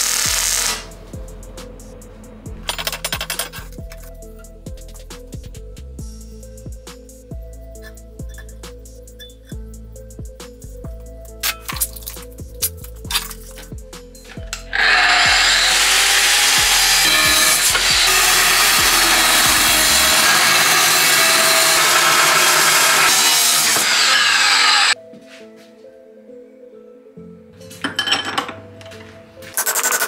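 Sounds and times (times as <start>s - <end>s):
angle grinder cutting steel: 0.0s - 0.9s, 14.5s - 25.0s
background music: 0.0s - 30.0s.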